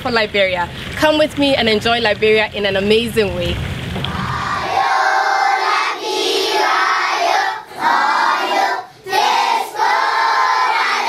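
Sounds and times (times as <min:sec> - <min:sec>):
children singing together: 0:04.2 - 0:11.0.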